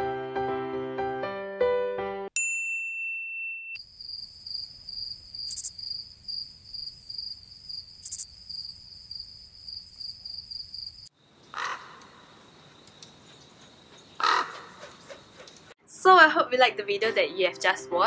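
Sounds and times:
short ding tone: 0:02.4 - 0:03.8
crickets chirping: 0:03.8 - 0:15.7.

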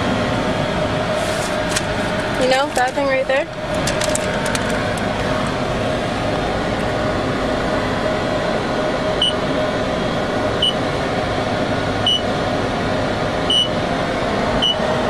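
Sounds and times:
steady background hum: 0:00.0 - 0:15.0
keypad beeps: 0:13.5 - 0:13.7.

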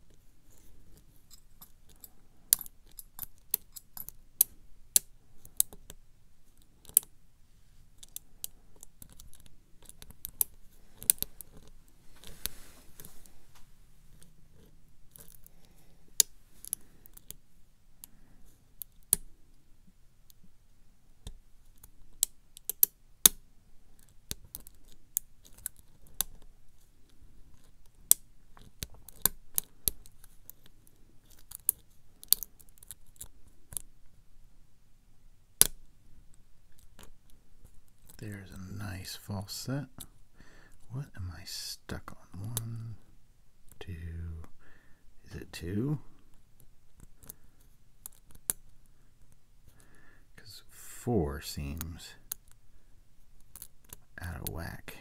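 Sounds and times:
pick scratching: 0:08.0 - 0:17.4.

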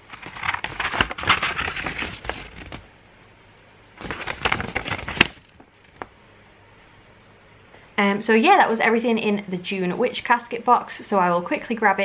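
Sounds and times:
paper rustling and crinkling: 0:00.0 - 0:02.8, 0:04.0 - 0:06.1.

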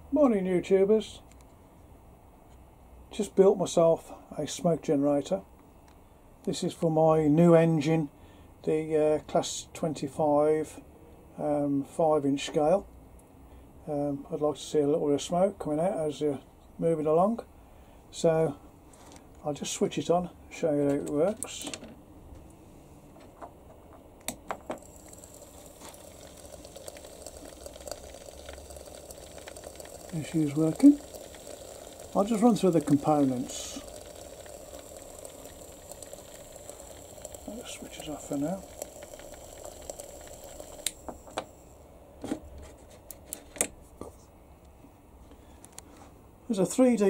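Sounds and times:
faint steady hum: 0:00.0 - 0:47.0
thin high whine: 0:24.6 - 0:42.3
heating element sizzling in fluid: 0:24.8 - 0:41.7.

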